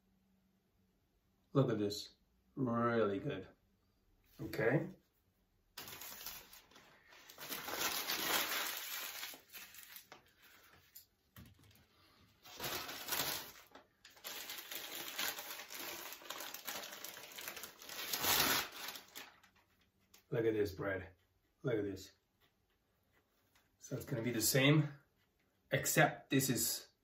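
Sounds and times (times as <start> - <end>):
paper food wrapping rustling: 5.8 - 20.2.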